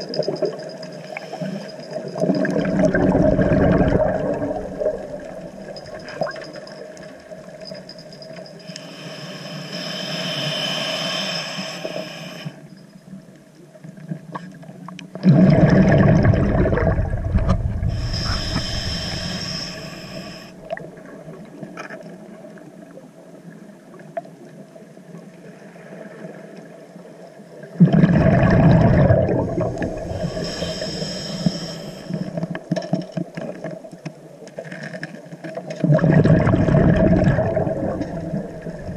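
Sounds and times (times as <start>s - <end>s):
hissing inhales through regulator: 1.0s - 2.2s, 8.5s - 12.7s, 17.8s - 20.8s, 29.8s - 32.6s
exhaled bubbles rushing: 2.2s - 6.1s, 15.2s - 18.9s, 27.8s - 30.4s, 35.8s - 38.9s.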